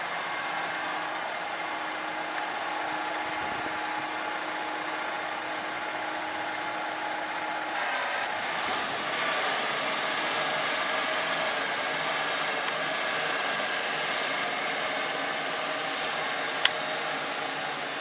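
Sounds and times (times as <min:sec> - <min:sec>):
flail mower cutting grass: 0:07.9 - 0:18.0.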